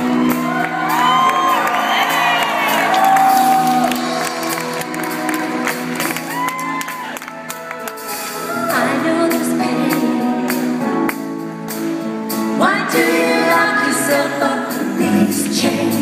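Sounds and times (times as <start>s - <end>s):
band with guitars and keyboards: 0.0s - 16.0s
women singing pop ballad: 8.5s - 10.8s, 12.5s - 16.0s.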